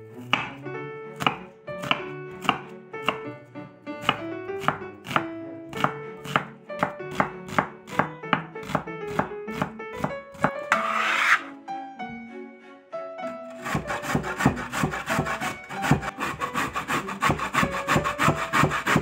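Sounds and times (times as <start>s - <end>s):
knife chopping on wooden board: 0.2s - 0.6s, 1.2s - 3.3s, 4.0s - 11.4s, 13.5s - 19.0s.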